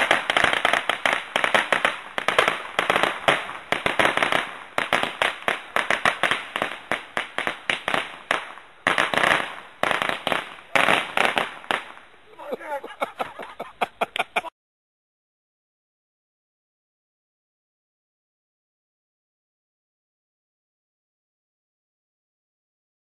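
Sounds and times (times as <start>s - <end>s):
firecrackers cracking: 0.0s - 14.4s.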